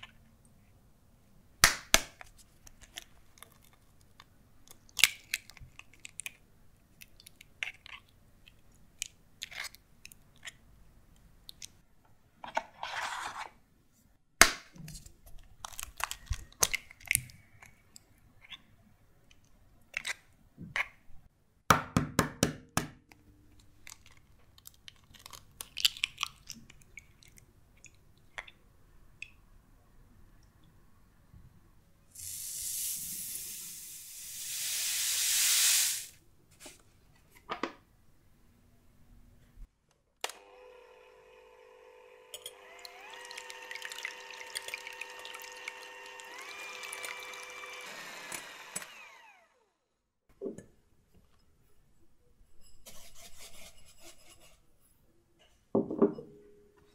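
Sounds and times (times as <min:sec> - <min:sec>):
eggshells cracking: 0:15.5 - 0:17.4, 0:23.8 - 0:27.3
sugar pouring into glass bowl: 0:32.2 - 0:36.1, 0:43.2 - 0:45.8.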